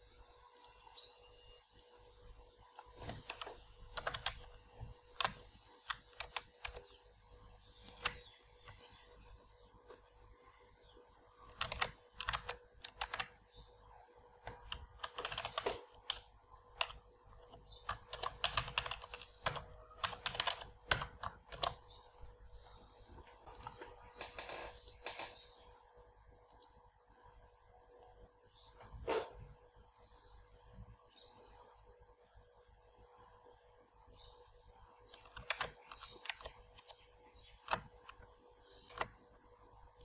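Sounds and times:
faint steady hum: 0.0 - 40.0
typing on computer keyboard: 2.7 - 7.0, 7.7 - 8.8, 11.3 - 13.7, 14.4 - 22.0, 23.2 - 25.4, 26.4 - 26.8, 35.0 - 39.2.

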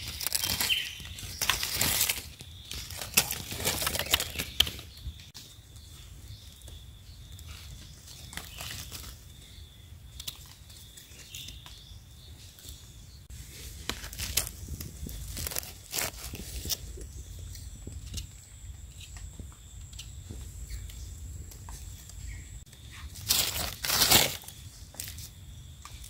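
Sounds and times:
dry leaves rustling: 0.0 - 5.7, 7.6 - 9.5, 13.3 - 17.4, 21.7 - 25.3.

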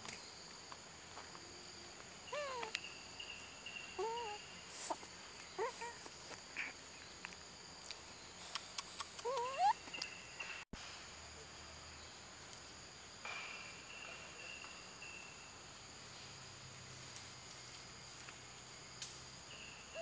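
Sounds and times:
forest insects buzzing: 0.0 - 10.6, 11.2 - 20.0
monkey squeaky calls: 2.3 - 2.7, 4.0 - 5.0, 5.6 - 6.1, 9.2 - 10.0.

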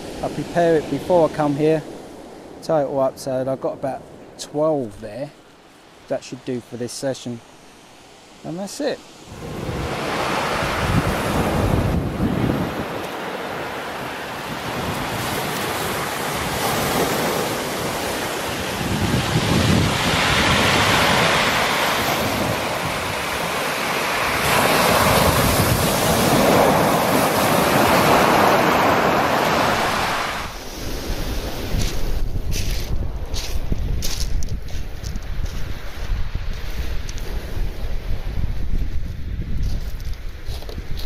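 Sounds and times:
wind noise on microphone: 9.3 - 23.6, 24.2 - 41.0.

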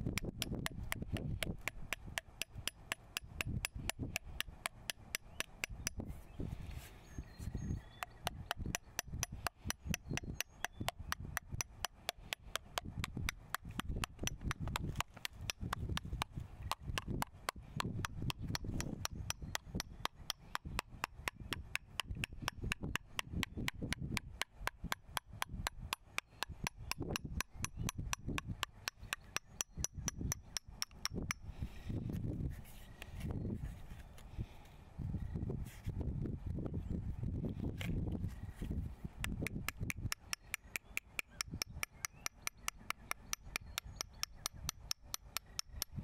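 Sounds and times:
wrench tapping on paper: 0.1 - 6.0, 8.0 - 31.4, 39.2 - 46.0.

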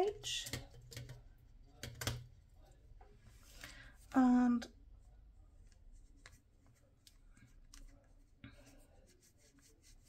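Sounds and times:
paintbrush on paper: 5.5 - 10.0.

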